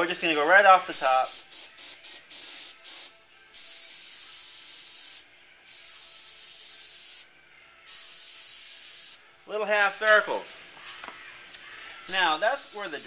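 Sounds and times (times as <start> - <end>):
airbrush spraying: 0.9 - 9.2, 12.0 - 13.0.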